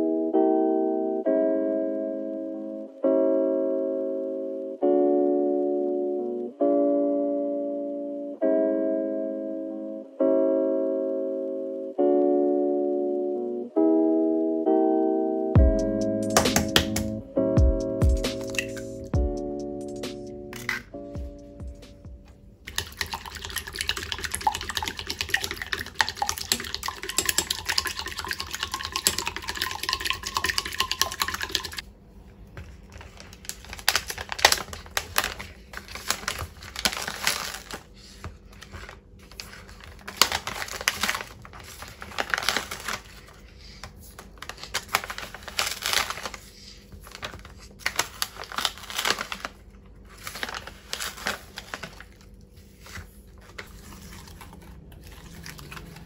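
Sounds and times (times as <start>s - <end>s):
spatula beating egg in bowl: 22.7s - 31.8s.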